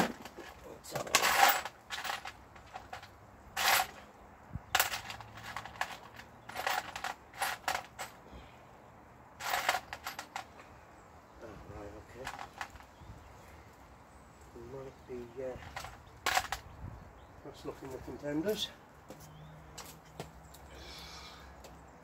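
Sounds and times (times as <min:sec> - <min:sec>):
small metal parts clinking: 0:00.1 - 0:04.0, 0:04.7 - 0:08.2, 0:09.4 - 0:10.5, 0:12.2 - 0:13.0, 0:15.6 - 0:16.7.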